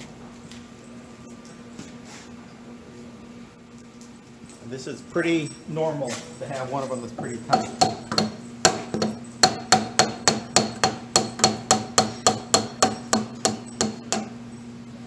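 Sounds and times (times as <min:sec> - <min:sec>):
hammer striking cast iron: 0:07.1 - 0:14.4.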